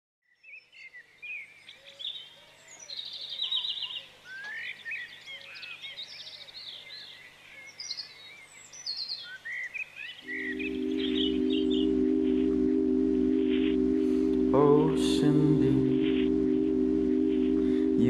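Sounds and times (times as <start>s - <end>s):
birds singing: 0.5s - 11.8s
low music chord: 10.3s - 18.0s.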